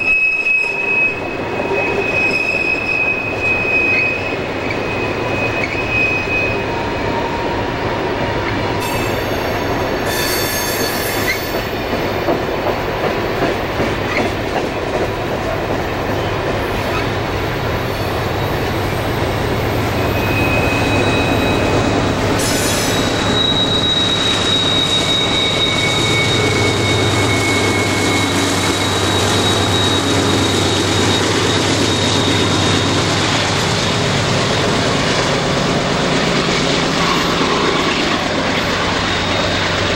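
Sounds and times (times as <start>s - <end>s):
wheel flanges squealing: 0.0s - 7.7s, 8.4s - 12.3s, 15.8s - 34.7s, 36.0s - 39.9s
train wheels rumbling: 0.0s - 39.9s
locomotive engine drone: 11.6s - 39.9s.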